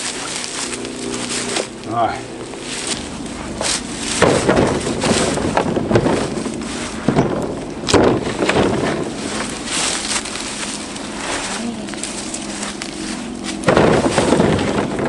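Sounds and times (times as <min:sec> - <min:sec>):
wind buffeting microphone: 0:00.0 - 0:15.0
firewood knocking into vehicle bed: 0:02.9 - 0:10.0, 0:13.5 - 0:15.0.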